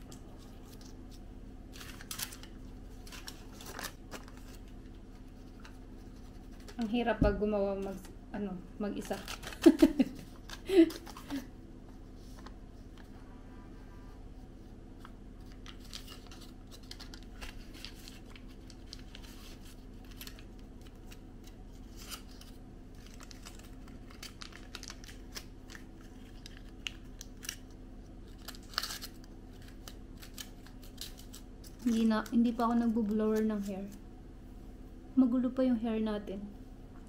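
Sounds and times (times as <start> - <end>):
aluminium foil crinkling: 0.0 - 7.0, 8.9 - 11.5, 15.0 - 34.0.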